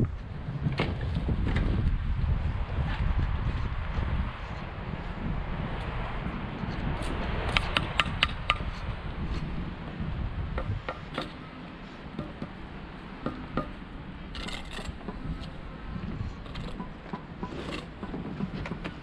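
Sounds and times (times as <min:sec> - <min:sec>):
hand tool tapping on stone: 0:07.5 - 0:08.7.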